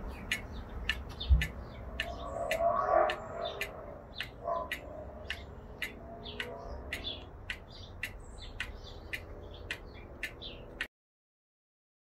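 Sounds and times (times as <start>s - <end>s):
clock ticking: 0.0s - 10.9s
small birds chirping: 0.0s - 10.9s.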